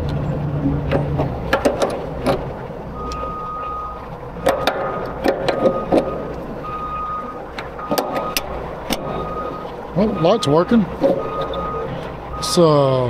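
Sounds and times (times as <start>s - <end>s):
diesel truck engine idling: 0.0s - 13.0s
backup alarm beeping: 2.9s - 13.0s.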